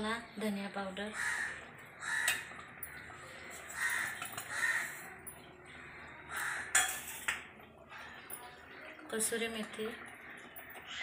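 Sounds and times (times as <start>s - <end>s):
harsh cawing bird calls: 1.1s - 6.8s, 9.8s - 11.0s.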